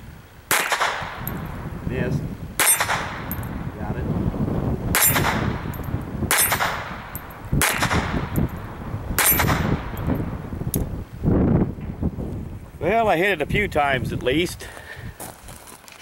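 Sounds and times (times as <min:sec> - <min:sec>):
pistol shots: 0:00.5 - 0:01.3, 0:02.6 - 0:03.4, 0:04.9 - 0:05.7, 0:06.3 - 0:08.3, 0:09.2 - 0:10.0
steel target clanging: 0:02.6 - 0:03.6, 0:05.0 - 0:08.6, 0:09.2 - 0:10.3.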